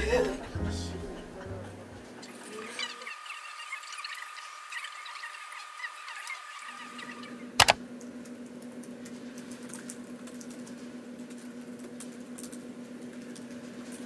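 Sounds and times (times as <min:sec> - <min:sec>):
laptop keyboard tapping: 0:07.6 - 0:07.8.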